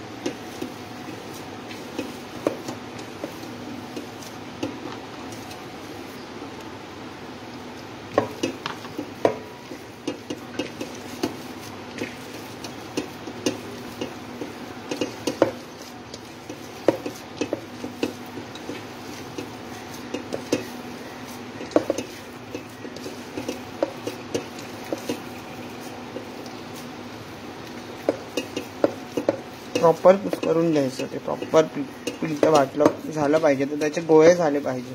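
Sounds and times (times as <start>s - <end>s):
steady low hum: 0.0s - 34.9s
hand kneading dough: 8.2s - 34.9s
steel pot knocking and clinking: 28.0s - 34.4s.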